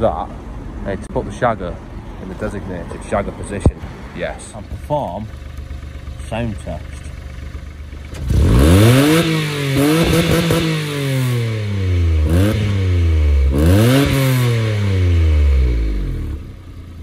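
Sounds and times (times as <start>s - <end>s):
car engine revving: 7.9s - 17.0s.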